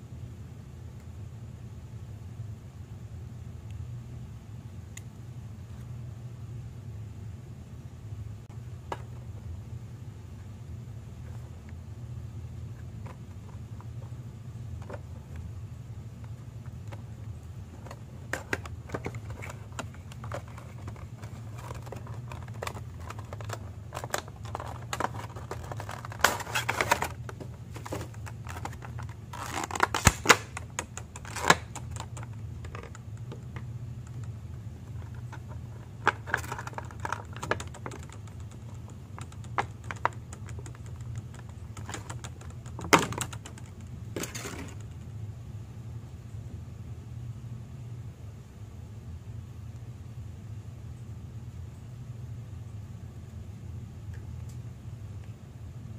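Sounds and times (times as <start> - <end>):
plastic crinkling: 17.8 - 44.9.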